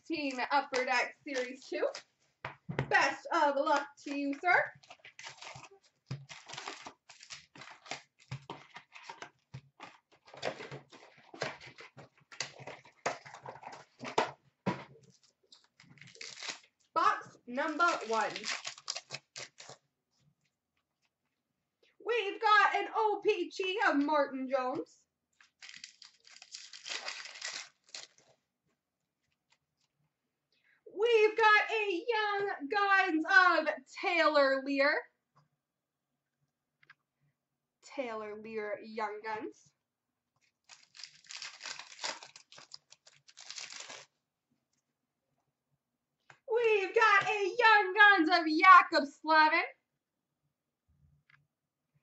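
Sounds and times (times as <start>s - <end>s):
paper and plastic crinkling: 4.1s - 16.8s, 17.6s - 19.8s, 25.4s - 28.4s, 40.4s - 44.2s.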